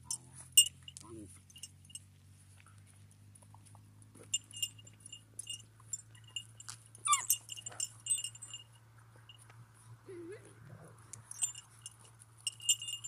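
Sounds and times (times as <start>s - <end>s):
light metallic jingling: 0.0s - 10.2s, 10.8s - 13.0s
puppy yelping: 7.0s - 7.5s.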